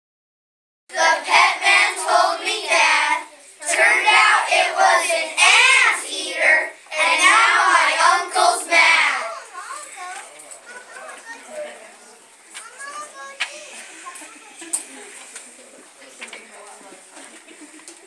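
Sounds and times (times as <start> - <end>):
children singing in unison: 0.9 - 9.3.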